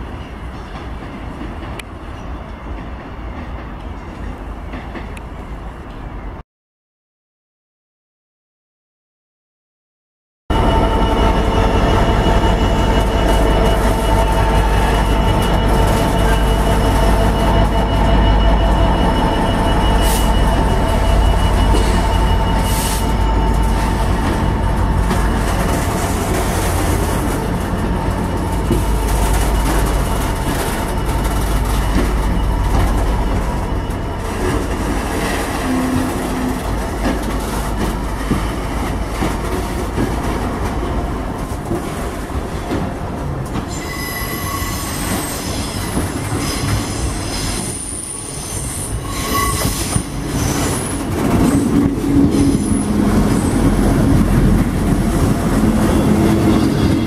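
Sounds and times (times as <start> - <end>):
freight train wheels rumbling: 10.5 - 57.0
passenger train running in: 10.5 - 57.0
high-pitched wheel squeals: 43.7 - 51.7.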